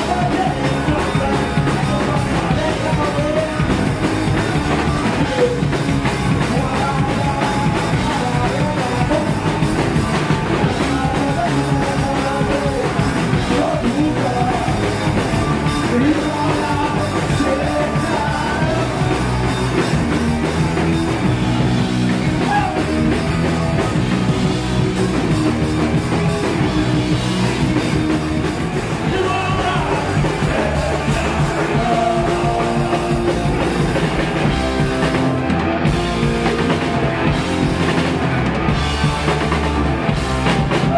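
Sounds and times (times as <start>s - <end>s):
singer's vocals: 0.0s - 20.5s, 28.8s - 35.3s
drum kit pounding: 0.0s - 40.9s
punk rock band playing live: 0.0s - 40.9s.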